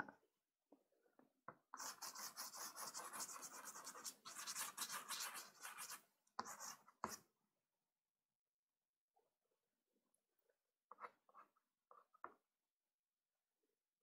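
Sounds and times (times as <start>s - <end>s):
pastel scratching on paper: 1.8s - 7.2s.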